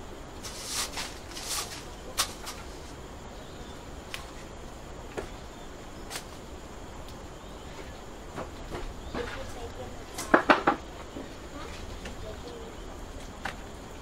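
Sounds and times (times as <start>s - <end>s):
fan scraping swishes: 0.0s - 3.1s
steady low hiss: 0.0s - 14.0s.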